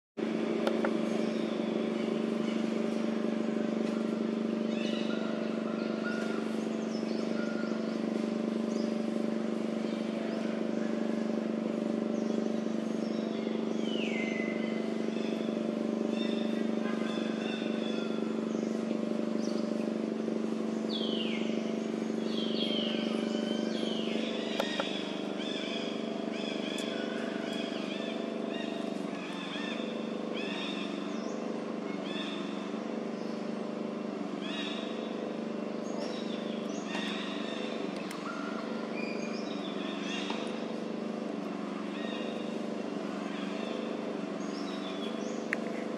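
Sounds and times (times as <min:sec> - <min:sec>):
low engine-like hum: 0:00.2 - 0:45.9
high chirping calls: 0:20.9 - 0:31.4.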